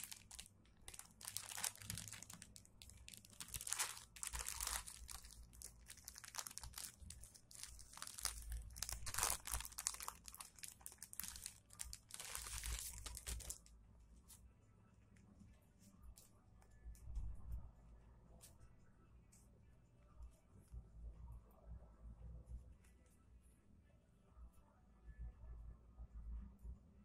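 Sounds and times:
plastic bag crinkling: 0:00.0 - 0:13.7.

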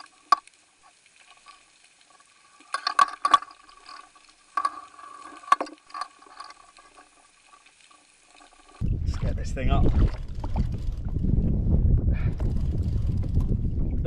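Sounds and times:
sharp clicks and knocks: 0:00.0 - 0:00.6, 0:02.2 - 0:07.0.

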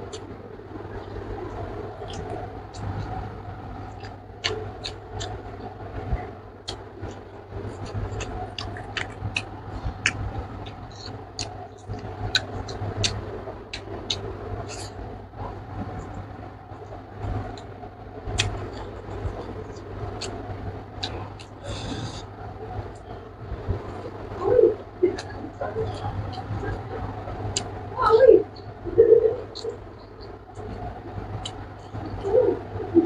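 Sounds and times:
steady low hum: 0:00.0 - 0:33.0
chewing and lip-smacking: 0:03.9 - 0:15.0, 0:18.3 - 0:23.1
sharp mouth clicks: 0:18.3 - 0:19.5.

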